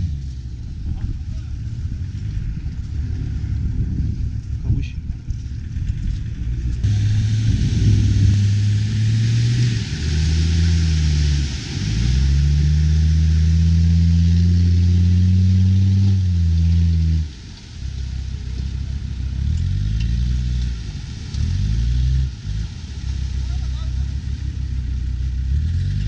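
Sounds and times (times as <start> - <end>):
diesel engine revving hard: 6.8 - 17.7
water splashing: 6.8 - 25.3.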